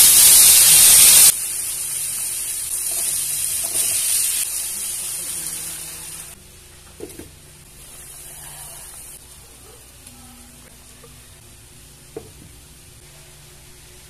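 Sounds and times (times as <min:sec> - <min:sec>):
broth simmering and sizzling: 0:00.0 - 0:10.2.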